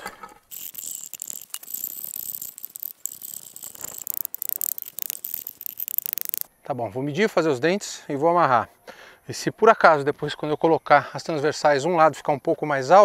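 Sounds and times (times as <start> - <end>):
high-pitched buzz: 0.5 - 6.5.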